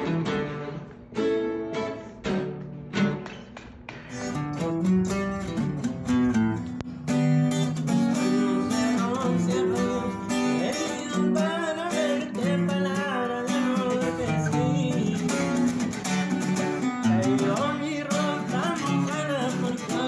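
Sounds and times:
acoustic guitar music: 0.0 - 20.0
person singing: 8.2 - 20.0.

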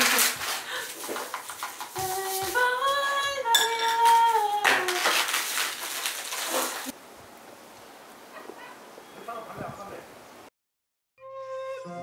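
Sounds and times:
plastic wrap rustling: 0.0 - 7.0
dishes clinking: 3.5 - 4.1
person singing rising notes: 11.2 - 12.0.

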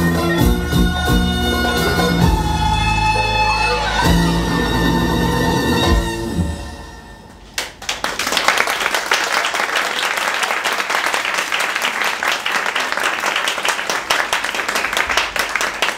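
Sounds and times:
audience applauding: 7.5 - 15.9.

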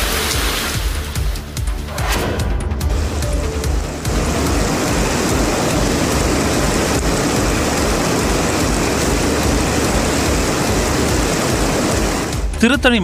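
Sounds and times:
heavy rain pouring: 0.0 - 1.7, 2.8 - 13.0
rainwater running off: 0.0 - 1.9, 2.8 - 13.0.

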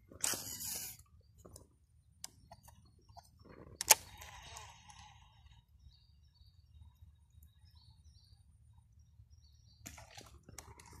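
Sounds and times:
fishing reel whirring: 0.2 - 1.0.

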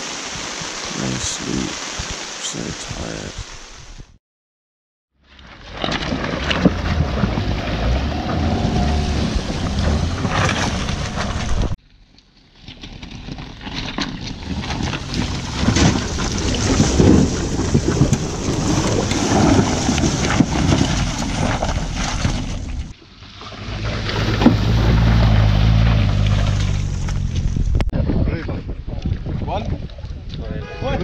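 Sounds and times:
torrential rain: 0.0 - 4.2, 6.4 - 11.8, 14.3 - 27.6
wind buffeting the microphone: 14.4 - 22.9, 27.2 - 31.0.

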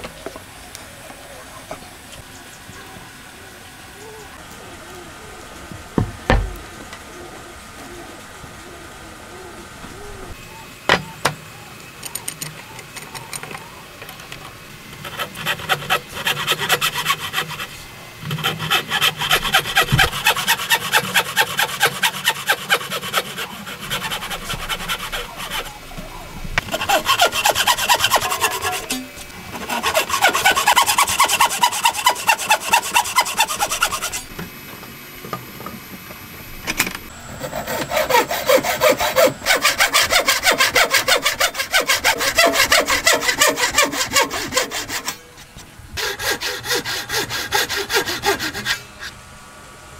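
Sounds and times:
hand saw cutting wood: 15.0 - 25.8, 26.6 - 34.3, 37.4 - 49.2.

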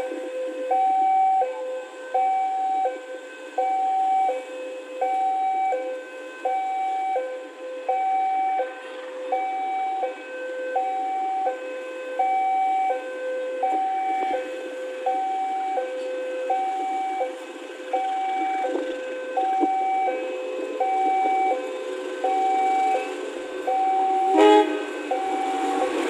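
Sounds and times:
level-crossing two-tone alarm: 0.0 - 26.0.

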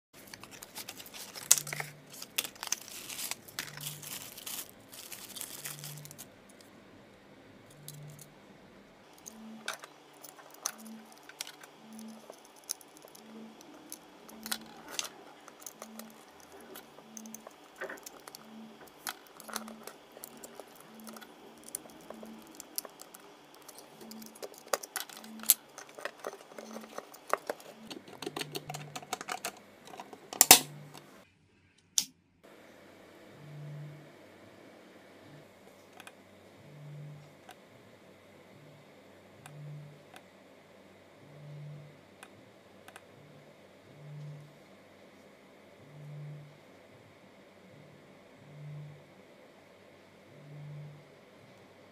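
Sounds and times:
packaging rustling and crinkling: 0.2 - 6.3, 9.2 - 30.6.

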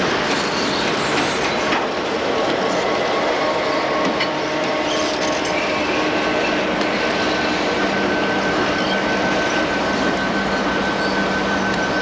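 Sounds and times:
locomotive engine drone: 0.0 - 12.0.

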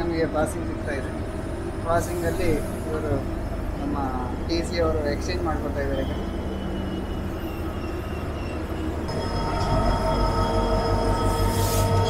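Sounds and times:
train coaches rumbling on rails: 0.0 - 12.0
high wheel squeal: 5.2 - 12.0.

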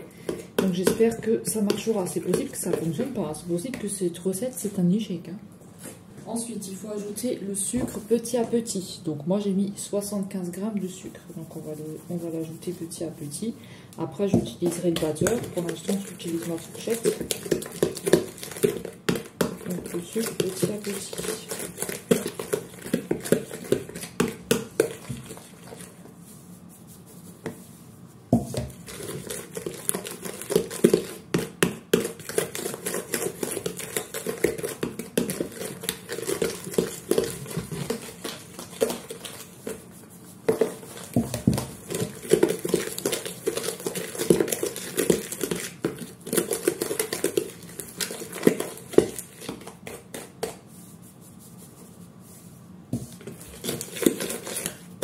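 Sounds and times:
fork scraping a mixing bowl: 14.4 - 27.2, 28.4 - 51.1.

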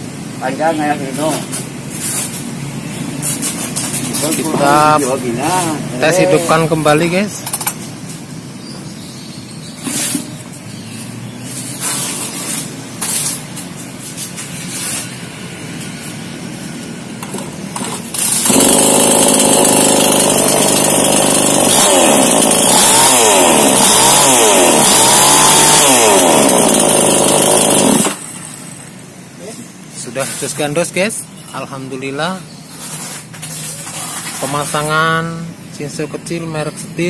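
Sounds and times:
chainsaw starting attempts: 17.8 - 28.8
chainsaw engine revving: 17.9 - 28.9.

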